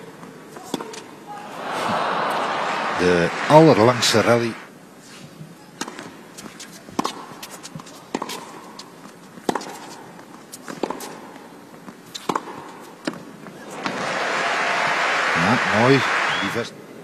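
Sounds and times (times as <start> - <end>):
tennis ball bouncing: 0.2 - 1.1, 7.0 - 14.1
racket hitting tennis ball: 0.6 - 1.1, 7.0 - 14.1.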